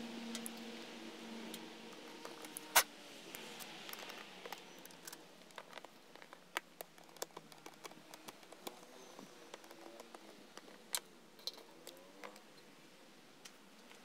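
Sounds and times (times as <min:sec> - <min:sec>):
screwdriver clicking on plastic: 0:03.9 - 0:11.0.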